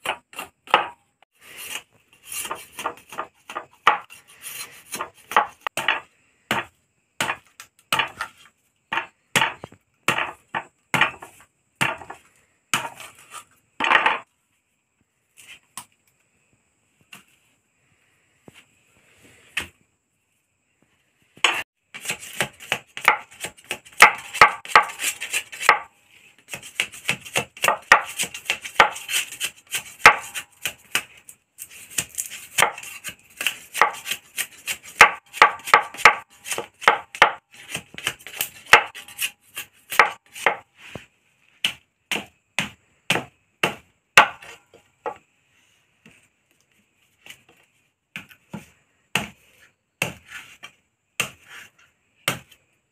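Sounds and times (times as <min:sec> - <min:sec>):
machete chopping bamboo: 0:00.0 - 0:01.0, 0:02.4 - 0:13.3, 0:21.4 - 0:25.9, 0:26.5 - 0:40.7, 0:41.6 - 0:45.2, 0:48.2 - 0:49.4, 0:50.0 - 0:50.4, 0:51.2 - 0:52.6.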